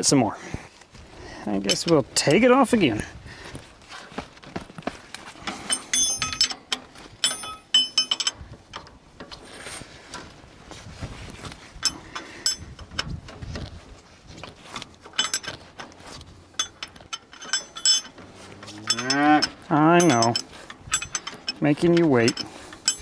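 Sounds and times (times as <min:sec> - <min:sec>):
wrench clinking on bolts: 0:01.6 - 0:02.0, 0:05.4 - 0:09.6, 0:11.8 - 0:13.7, 0:14.9 - 0:23.0.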